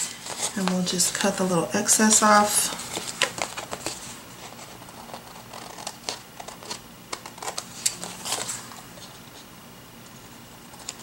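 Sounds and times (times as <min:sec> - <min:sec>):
paper handling: 0:00.0 - 0:01.4, 0:02.1 - 0:09.5
scissors snipping paper: 0:04.9 - 0:08.4.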